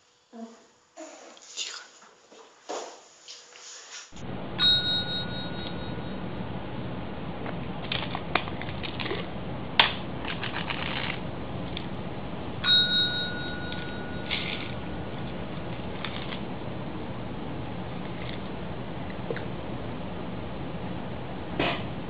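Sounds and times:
service bell dings: 0:04.6 - 0:06.2, 0:12.6 - 0:14.6.

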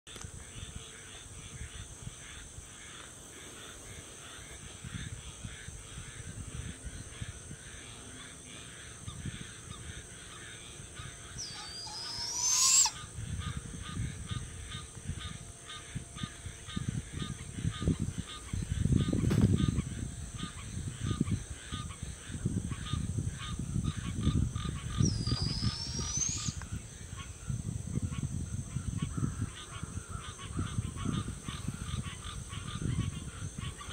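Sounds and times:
young owl screeching: 0:11.4 - 0:13.1, 0:25.0 - 0:26.6.

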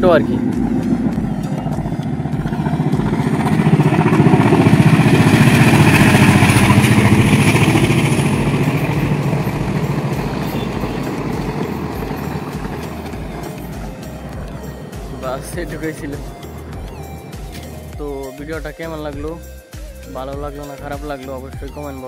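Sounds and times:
passenger train passing: 0:00.0 - 0:18.0.

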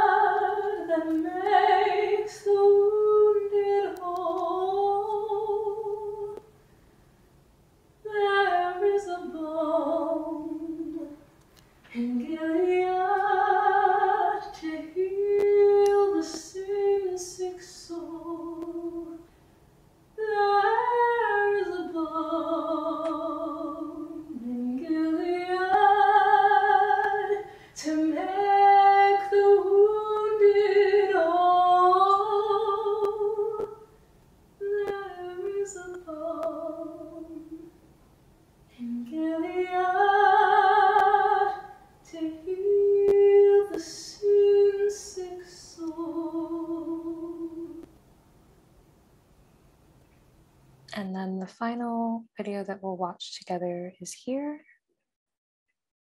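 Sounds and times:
woman singing unaccompanied: 0:00.0 - 0:06.6, 0:08.0 - 0:19.3, 0:20.2 - 0:34.0, 0:34.6 - 0:37.8, 0:38.7 - 0:47.9.

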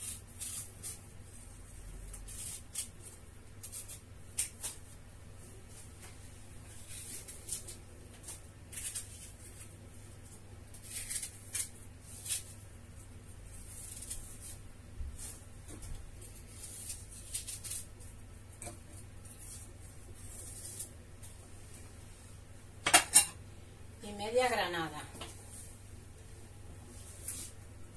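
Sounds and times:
knife peeling apple skin: 0:00.0 - 0:05.0, 0:06.7 - 0:21.3.

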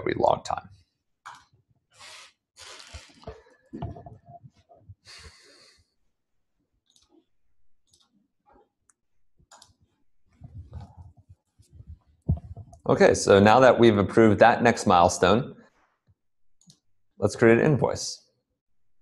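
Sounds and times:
breathing close to microphone: 0:05.0 - 0:06.0.

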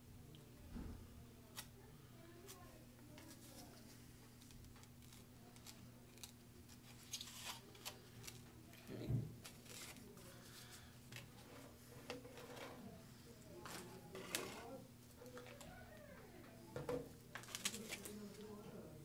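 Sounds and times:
crackers clicking and scraping on plate: 0:04.2 - 0:08.9.

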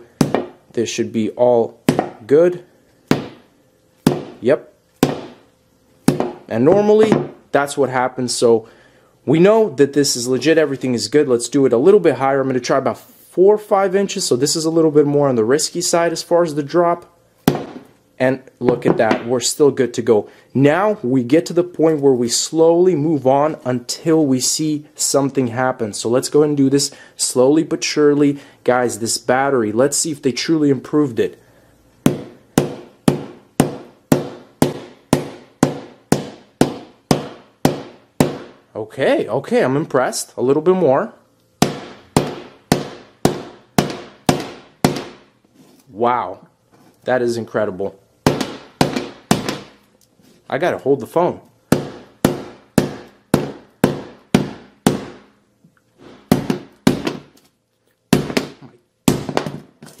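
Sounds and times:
hammer striking glass screen: 0:03.1 - 0:03.5, 0:04.1 - 0:04.4, 0:05.0 - 0:05.4, 0:06.1 - 0:06.4, 0:32.1 - 0:38.6, 0:41.6 - 0:45.3, 0:48.3 - 0:49.8, 0:51.8 - 0:55.2, 0:56.0 - 0:57.3.

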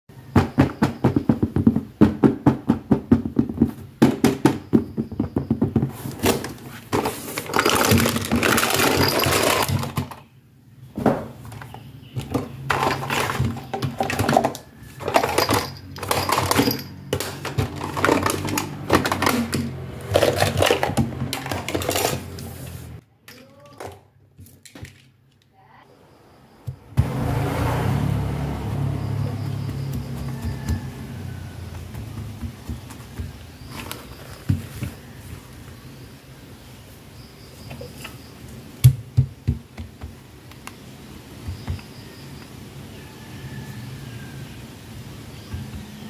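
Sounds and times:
rustling and scraping: 0:04.6 - 0:10.3, 0:10.9 - 0:23.0, 0:29.3 - 0:36.0
plastic toys clicking and clattering: 0:06.2 - 0:10.3, 0:11.5 - 0:22.6, 0:23.2 - 0:25.5, 0:32.4 - 0:34.9.

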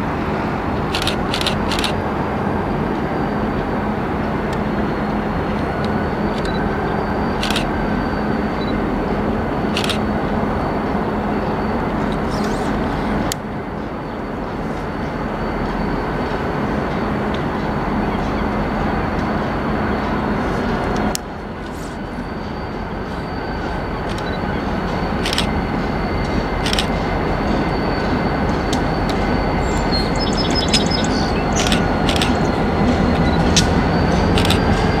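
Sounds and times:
diesel locomotive engine rumble: 0:00.0 - 0:35.0
sharp clicks: 0:31.6 - 0:32.5.

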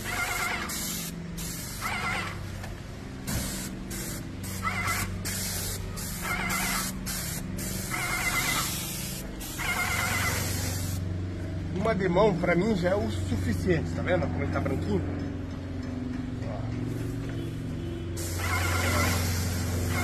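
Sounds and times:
paint sprayer hissing bursts: 0:00.0 - 0:02.4, 0:03.2 - 0:11.0, 0:18.2 - 0:20.0.

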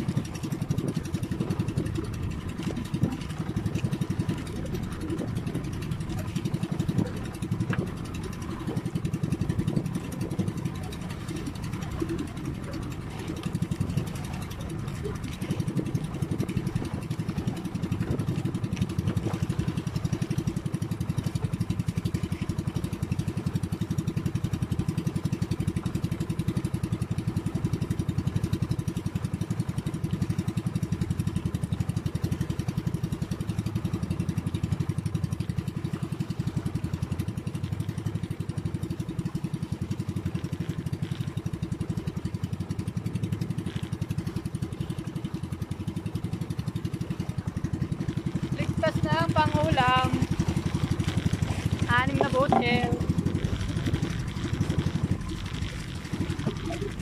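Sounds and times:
boat engine running: 0:00.0 - 0:57.0.

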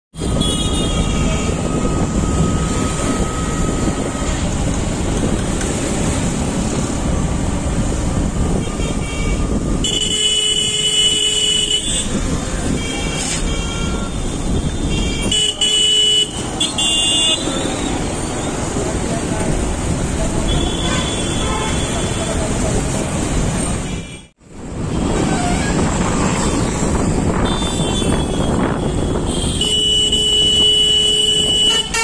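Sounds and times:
motorcycle engine and wind rumble: 0:00.2 - 0:15.8, 0:24.5 - 0:32.0
horns tooting: 0:08.5 - 0:18.8, 0:20.3 - 0:22.7, 0:27.4 - 0:32.0.

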